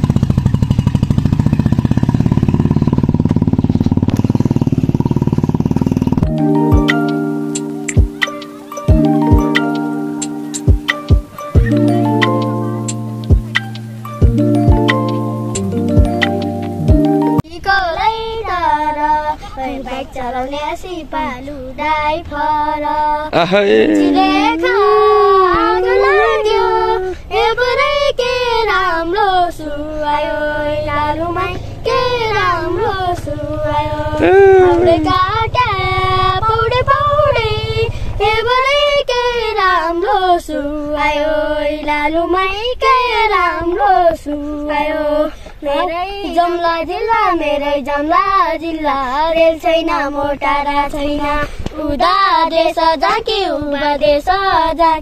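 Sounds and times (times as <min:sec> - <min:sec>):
children singing in unison: 0:18.0 - 0:55.0.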